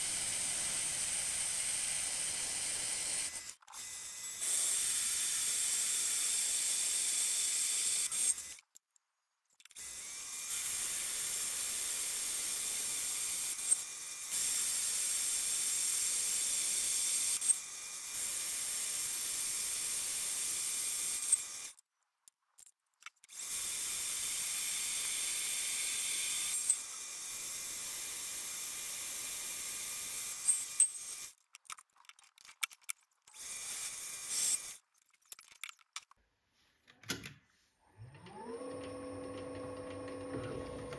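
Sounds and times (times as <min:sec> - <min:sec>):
lathe motor whine: 0:38.2 - 0:40.9.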